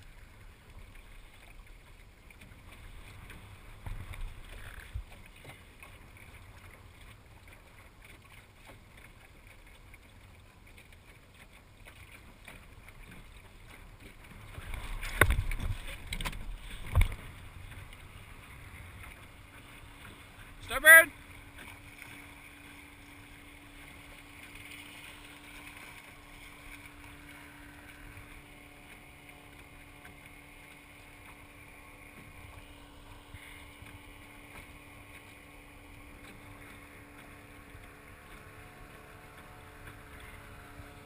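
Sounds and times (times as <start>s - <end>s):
wind and water noise: 0.0s - 41.0s.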